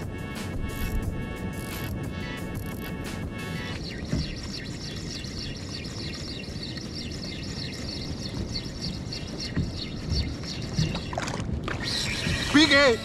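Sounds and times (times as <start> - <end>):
wind rumbling on microphone: 0.0 - 13.0
water lapping against kayak: 3.7 - 13.0.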